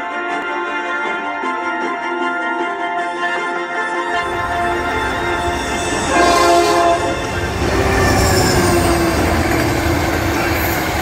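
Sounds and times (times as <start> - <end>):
locomotive horn blasts: 2.8 - 9.7
train rumble and wheel clatter: 4.1 - 11.0.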